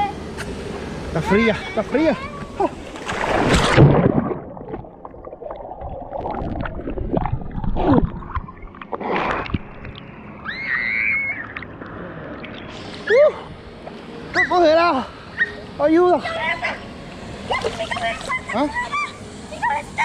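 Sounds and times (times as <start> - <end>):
muffled water sloshing and gurgling: 2.7 - 10.2
person splashing into water: 2.8 - 9.9.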